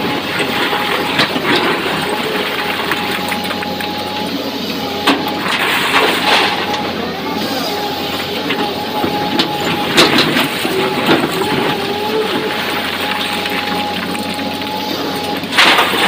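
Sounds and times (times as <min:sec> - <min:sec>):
excavator engine and hydraulic whine: 0:00.0 - 0:16.0
rocks clattering: 0:08.4 - 0:16.0
rush of tumbling rock: 0:08.4 - 0:16.0.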